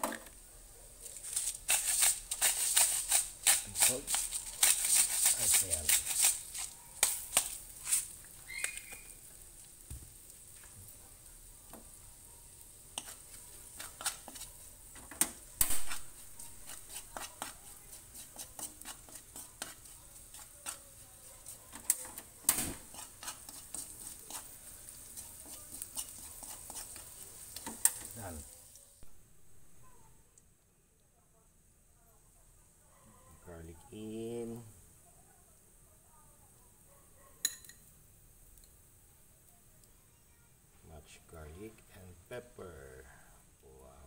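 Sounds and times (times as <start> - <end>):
steady faint hiss: 0.0 - 44.0
spoon scraping in a metal wok: 1.0 - 9.4, 12.8 - 28.8
spoon tapping against pan: 37.4 - 37.9.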